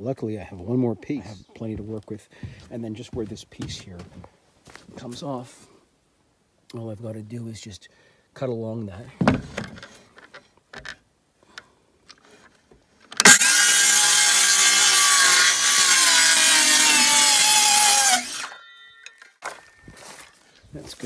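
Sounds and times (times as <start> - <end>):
circular saw cutting board: 13.2 - 18.6.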